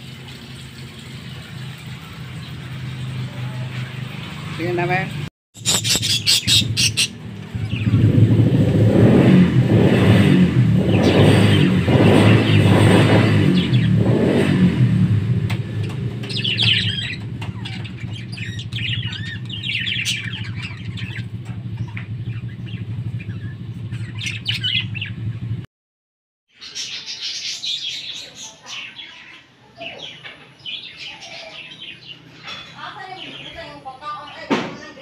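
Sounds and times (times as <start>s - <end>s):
budgerigars chirping: 5.6s - 8.0s, 15.8s - 25.4s, 26.6s - 32.6s.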